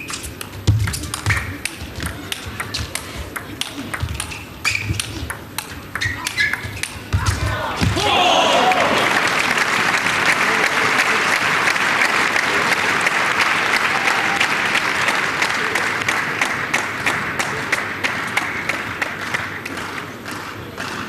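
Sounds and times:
spectators applauding: 7.9s - 21.0s.

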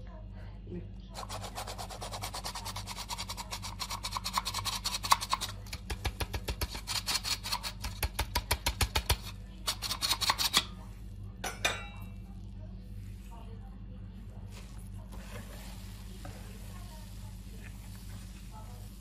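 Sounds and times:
flour sifter clicking and rasping: 1.2s - 10.8s.

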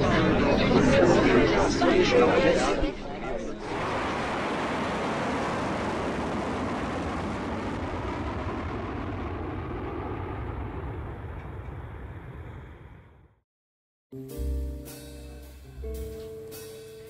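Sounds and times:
jet aircraft rushing noise: 3.6s - 13.4s.

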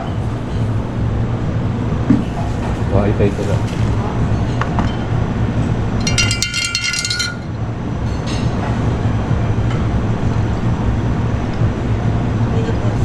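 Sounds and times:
low rumble of room noise: 0.0s - 13.0s
glass clinking and jingling: 6.0s - 7.5s.

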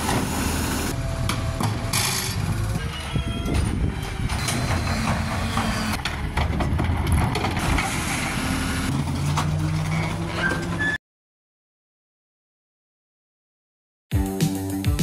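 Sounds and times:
diesel engines running: 0.0s - 11.0s
knocks and clanks: 3.4s - 8.1s.

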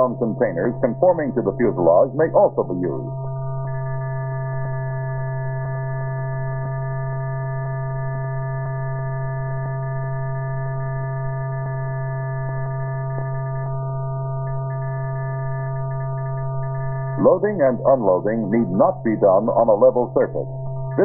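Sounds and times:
low electrical hum: 0.0s - 5.6s, 15.3s - 21.0s.

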